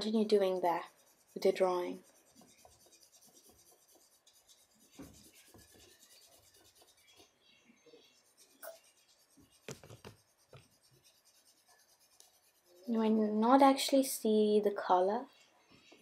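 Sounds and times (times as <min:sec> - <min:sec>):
coloured pencil scratching on paper: 0:00.0 - 0:07.4, 0:08.0 - 0:13.3.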